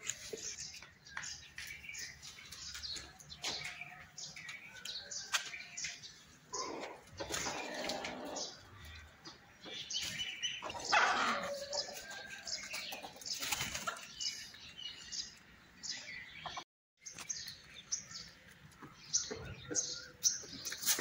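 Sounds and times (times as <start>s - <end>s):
chickens calling: 0.0s - 16.6s
chickens flapping wings: 13.3s - 14.1s.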